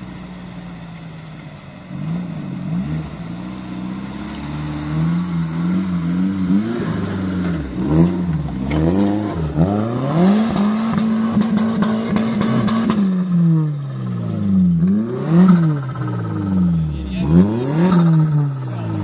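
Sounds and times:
engine revving: 0:00.0 - 0:19.0.

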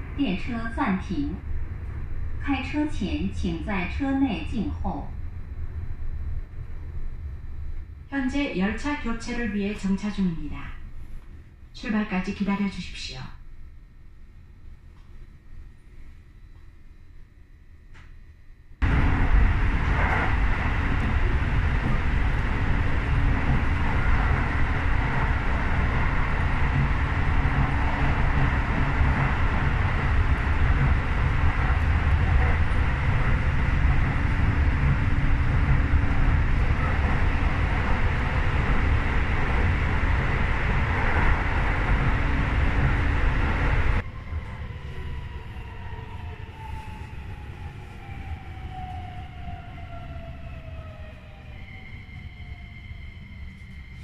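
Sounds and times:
train wheels rumbling on rails: 0:18.8 - 0:51.8.

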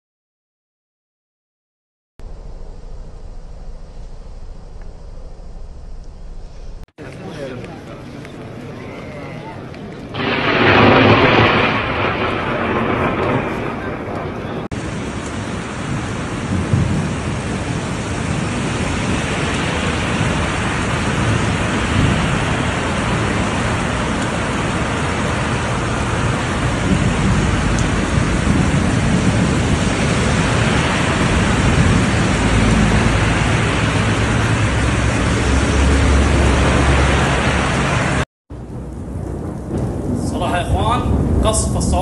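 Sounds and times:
low rumble: 0:02.2 - 0:06.9, 0:10.2 - 0:42.0
heavy rain pouring: 0:08.4 - 0:42.0.

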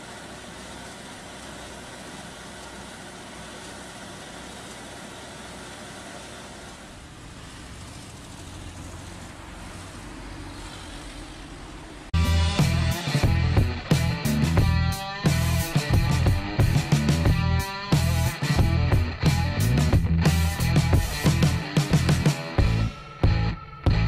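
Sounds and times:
road traffic hiss: 0:00.0 - 0:18.6
car driving past: 0:06.8 - 0:12.2.

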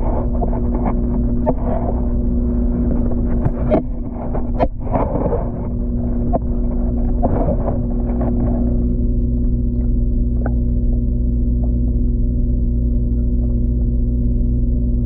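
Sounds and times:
water swishes: 0:00.0 - 0:11.8
constant multi-pitch hum: 0:00.0 - 0:15.0
underwater rumble: 0:00.0 - 0:15.0.

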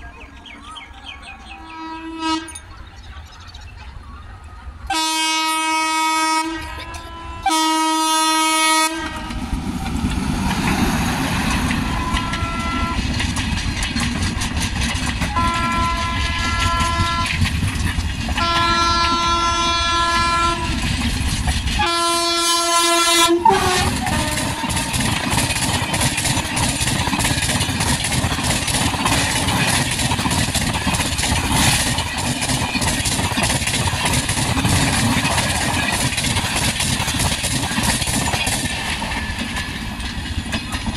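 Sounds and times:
train passing rumble: 0:00.0 - 0:40.9
train horn: 0:01.5 - 0:02.7, 0:04.9 - 0:09.4, 0:11.7 - 0:13.1, 0:15.2 - 0:17.4, 0:18.4 - 0:20.9, 0:21.8 - 0:25.2
wheels clattering over rails: 0:09.0 - 0:40.9.

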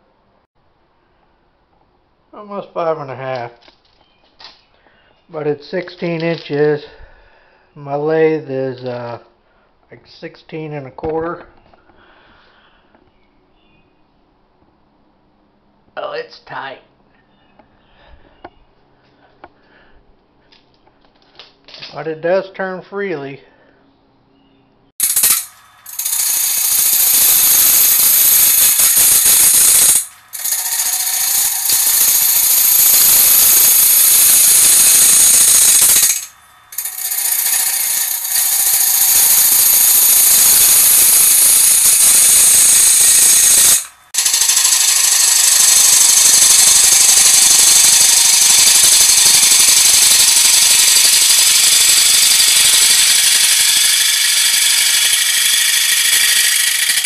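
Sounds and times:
lathe tool cutting wood: 0:25.0 - 0:57.0.

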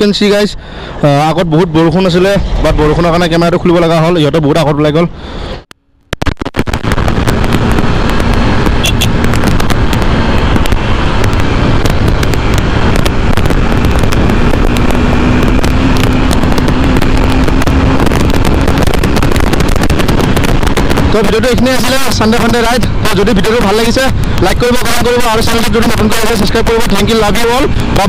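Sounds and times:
motorcycle engine hum: 0:00.0 - 0:28.0
wind buffeting microphone: 0:06.2 - 0:28.0.

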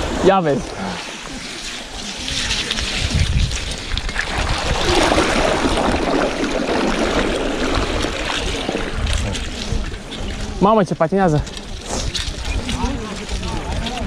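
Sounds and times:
bicycle tyres splashing through mud: 0:00.0 - 0:14.0.

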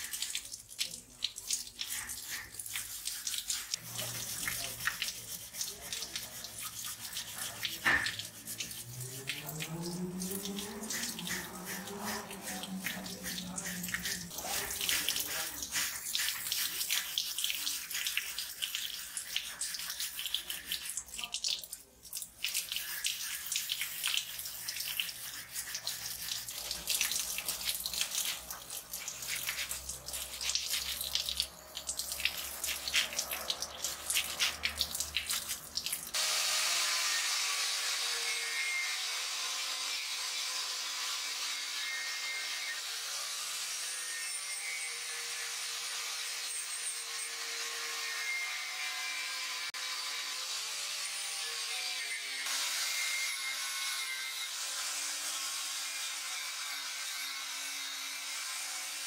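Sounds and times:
wire brush scrubbing metal: 0:01.4 - 0:36.2.

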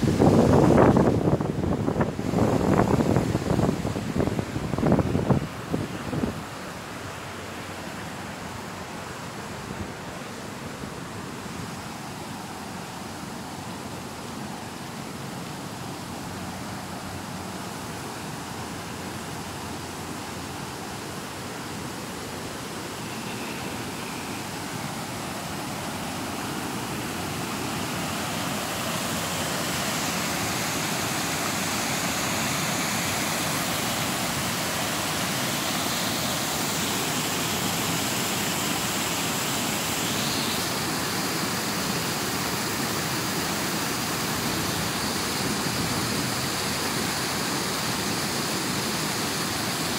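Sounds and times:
water rushing over a weir: 0:00.0 - 0:49.9.

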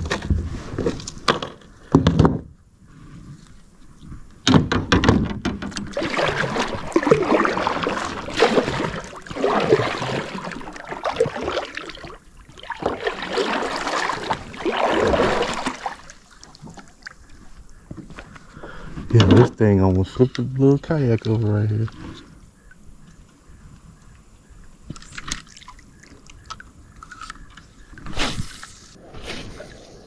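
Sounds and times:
knocks: 0:04.4 - 0:05.9
paddle splashing through water: 0:05.6 - 0:17.9.

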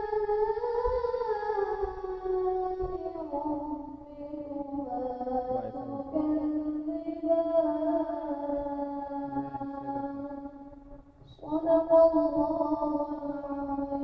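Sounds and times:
person chanting over loudspeakers: 0:04.9 - 0:10.5.

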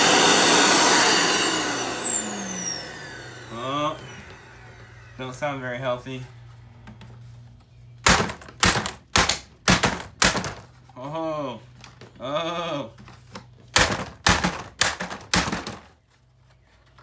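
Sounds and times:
hammer knocking on plastic: 0:08.0 - 0:10.6.

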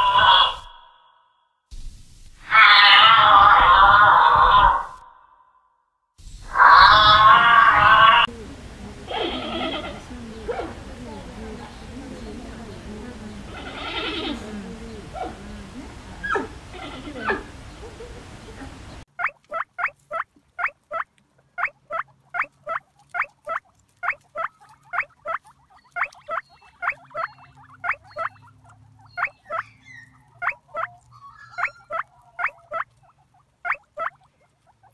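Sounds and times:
guinea pigs squeaking: 0:09.1 - 0:34.9.

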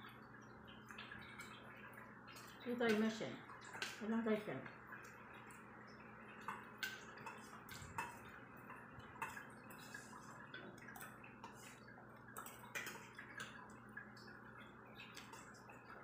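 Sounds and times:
faint room hum: 0:00.0 - 0:16.0
spoons clinking against metal bowls: 0:02.7 - 0:04.5.

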